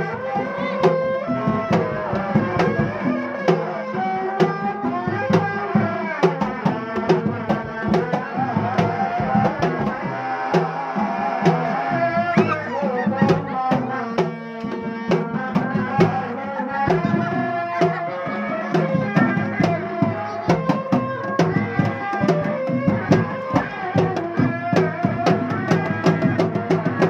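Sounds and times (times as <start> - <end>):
drums beating quick rhythm: 0.0 - 27.0.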